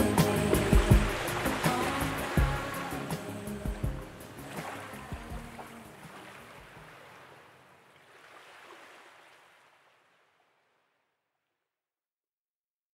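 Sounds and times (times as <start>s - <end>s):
surf-like wash of noise: 0.0s - 9.7s.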